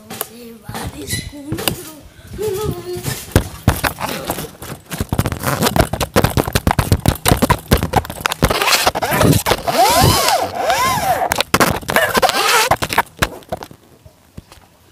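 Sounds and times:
phone handling noise: 3.1s - 13.8s
short squeals: 8.4s - 13.0s.

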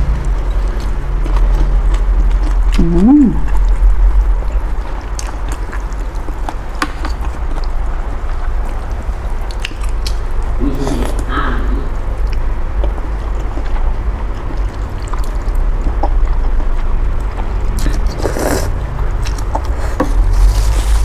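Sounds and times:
steady low hum: 0.0s - 21.0s
person slurping noodles: 17.8s - 18.8s.

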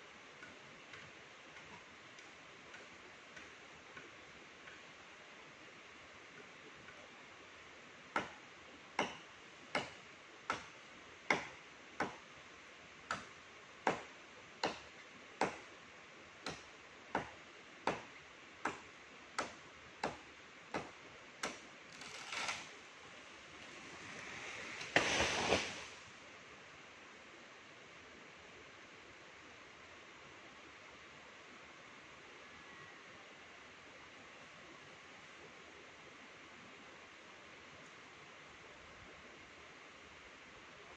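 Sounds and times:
tree top crashing down: 24.6s - 26.0s.

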